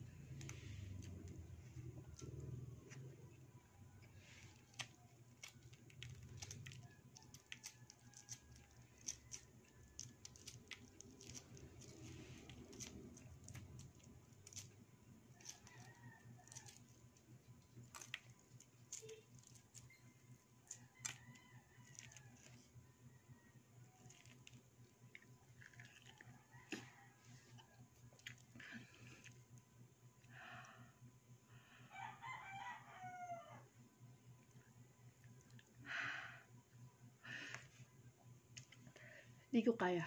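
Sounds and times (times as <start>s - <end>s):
eggs being peeled: 0.0s - 22.8s, 23.8s - 30.8s
chewing: 4.4s - 22.7s, 23.9s - 29.6s, 35.2s - 35.8s.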